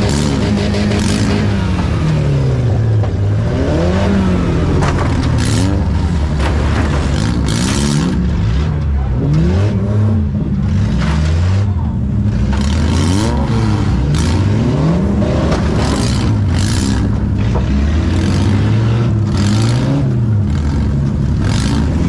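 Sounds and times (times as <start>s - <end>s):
car engine revving: 0.0s - 22.0s
loud rattles: 4.6s - 9.0s.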